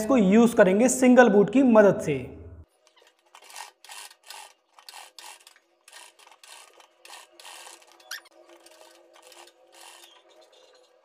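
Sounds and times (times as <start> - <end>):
sewing machine stitching: 2.9 - 11.0.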